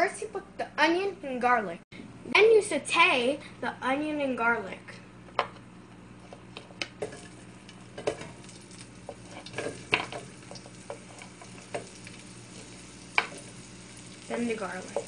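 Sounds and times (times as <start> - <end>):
onion sizzling in a frying pan: 7.0 - 15.0
wooden spoon tapping and scraping: 9.1 - 12.0.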